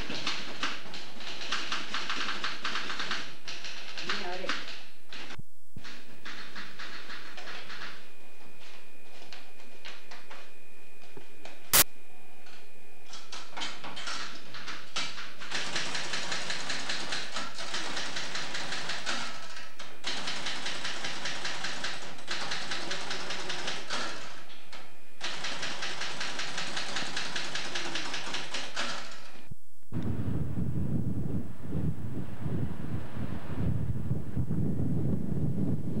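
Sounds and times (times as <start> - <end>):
typewriter keys clacking: 0.0 - 8.0, 13.3 - 24.3, 25.2 - 29.3
wind buffeting microphone: 29.9 - 36.0.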